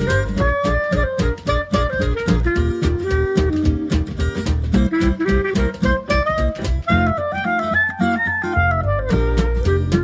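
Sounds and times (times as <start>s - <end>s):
low bass: 0.0s - 7.3s, 8.6s - 10.0s
reed-like jazz melody: 0.0s - 10.0s.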